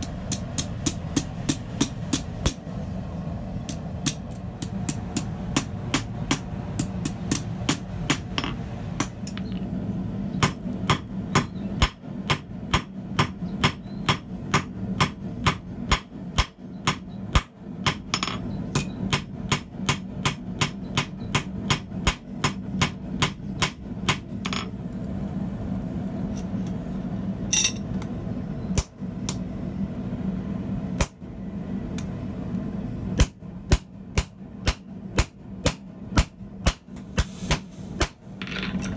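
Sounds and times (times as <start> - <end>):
steady low hum: 0.0 - 38.9
hammer striking steel on anvil: 10.4 - 24.7.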